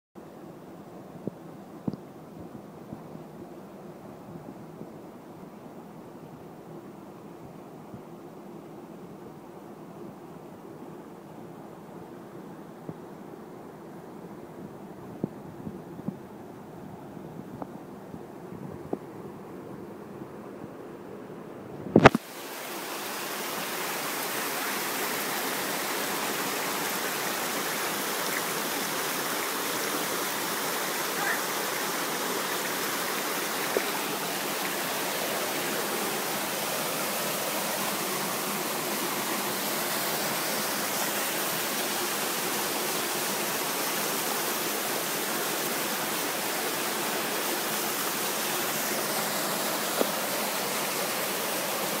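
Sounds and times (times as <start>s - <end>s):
waterfall rushing over rocks: 22.0s - 52.0s.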